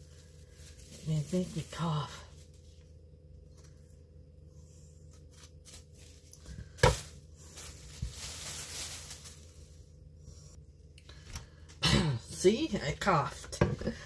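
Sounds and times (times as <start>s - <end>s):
plastic bag crinkling: 0.0s - 2.7s, 5.3s - 9.9s.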